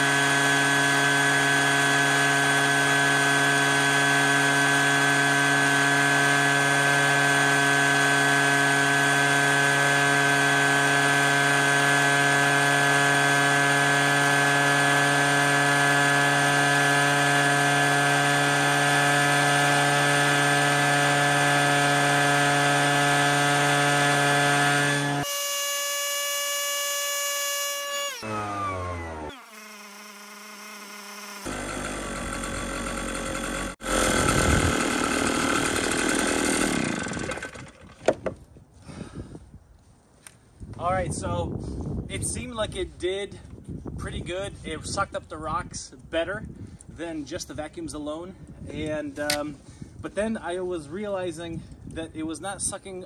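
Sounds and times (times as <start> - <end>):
vacuum motors whining: 0.0 - 37.6.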